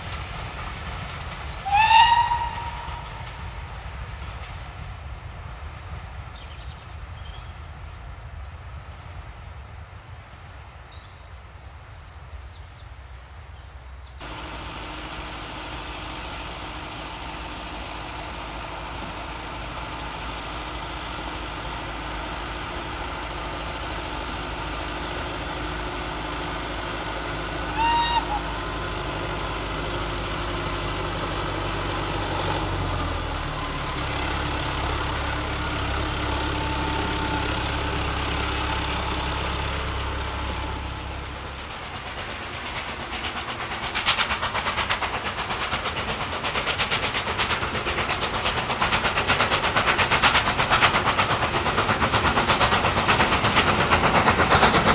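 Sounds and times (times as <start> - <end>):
steam locomotive exhaust beats: 0.0 - 54.9
steam train running: 0.0 - 54.9
train whistle blast: 1.6 - 3.2, 27.6 - 28.8.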